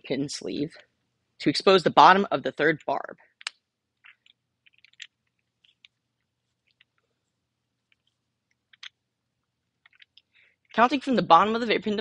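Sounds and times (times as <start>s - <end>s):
small clicks and rubs of hands: 3.4s - 10.8s.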